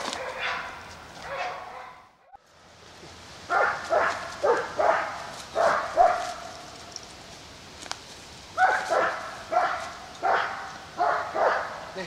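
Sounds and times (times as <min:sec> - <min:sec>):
dog barking: 0:00.1 - 0:02.1, 0:03.5 - 0:06.5, 0:08.6 - 0:11.9.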